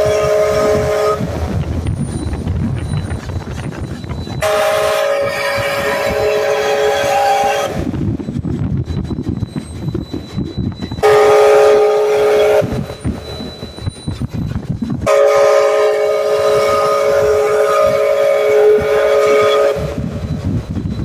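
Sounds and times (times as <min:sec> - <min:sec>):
steam locomotive whistle: 0:00.0 - 0:01.5, 0:04.2 - 0:07.9, 0:10.9 - 0:13.8, 0:15.0 - 0:20.4
locomotive rumbling and clattering: 0:00.0 - 0:21.0.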